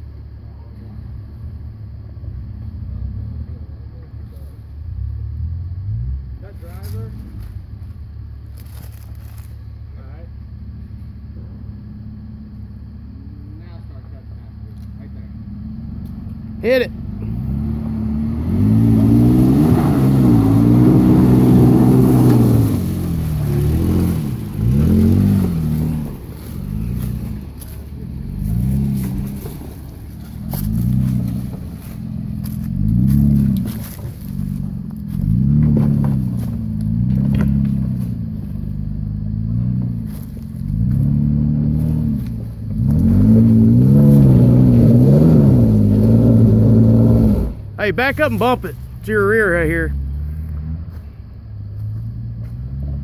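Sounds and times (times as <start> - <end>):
truck engine revving: 15.3 - 53.0.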